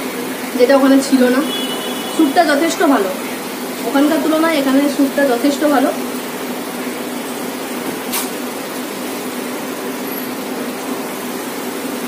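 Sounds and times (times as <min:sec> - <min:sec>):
sharp click: 0:08.1 - 0:08.4.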